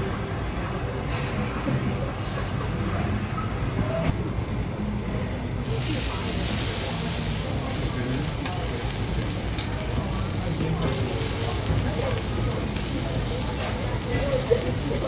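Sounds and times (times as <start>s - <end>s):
murmur of voices: 0.0s - 15.0s
food sizzling on griddle: 5.6s - 15.0s.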